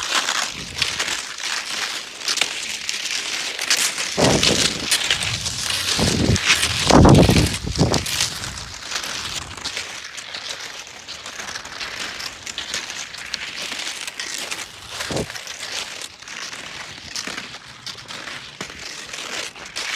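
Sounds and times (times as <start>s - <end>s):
skis sliding over icy snow: 0.0s - 19.9s
low thump: 4.2s - 8.1s.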